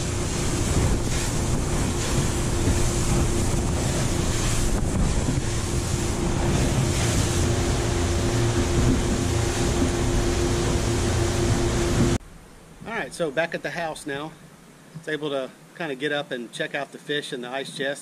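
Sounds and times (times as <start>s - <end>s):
wind rushing over microphone: 0.0s - 12.2s
outboard motors humming: 0.0s - 13.0s.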